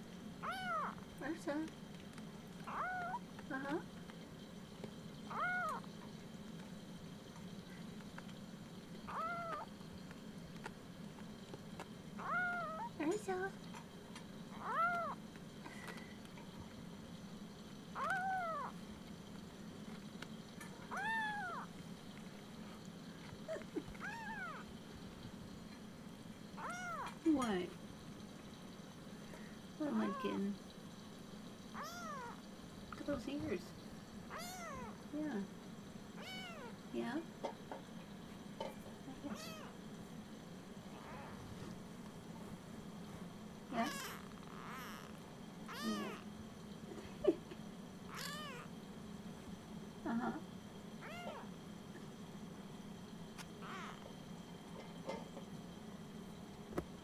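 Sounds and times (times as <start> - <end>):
kitten meowing: 0.4 - 1.0, 2.6 - 3.2, 5.3 - 5.9, 9.1 - 9.7, 12.2 - 13.0, 14.5 - 15.2, 18.0 - 18.8, 20.9 - 21.7, 24.0 - 24.7, 26.6 - 27.2, 31.8 - 32.4, 34.3 - 35.0, 36.2 - 36.8, 39.3 - 39.8, 43.8 - 46.3, 48.1 - 48.7, 51.0 - 51.5, 53.6 - 54.1.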